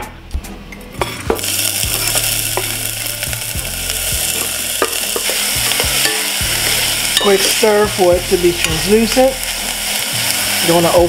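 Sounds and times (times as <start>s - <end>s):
onion sizzling in oil: 1.0s - 11.0s.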